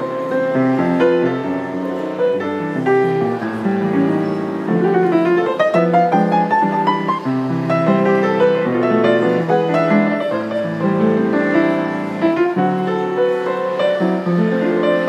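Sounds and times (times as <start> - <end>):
grand piano playing: 0.0 - 15.0.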